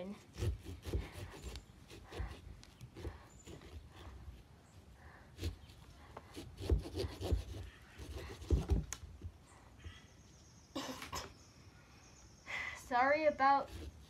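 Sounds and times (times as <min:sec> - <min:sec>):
saw scraping through pumpkin: 0:00.0 - 0:04.5, 0:05.1 - 0:08.9, 0:13.4 - 0:14.0.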